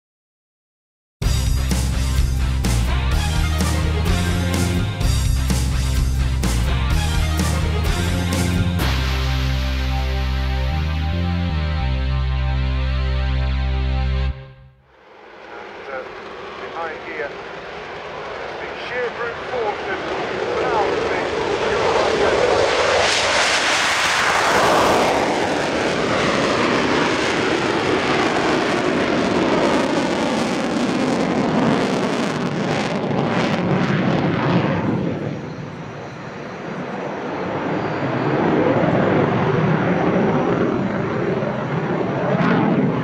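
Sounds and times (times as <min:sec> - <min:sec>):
jet engine roar: 0:01.2 - 0:11.5, 0:14.9 - 0:43.0.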